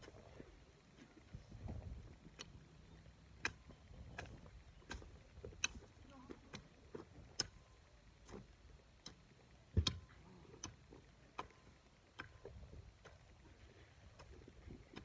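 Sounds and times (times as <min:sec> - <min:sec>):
hoe chopping into dry soil: 0:09.7 - 0:10.8.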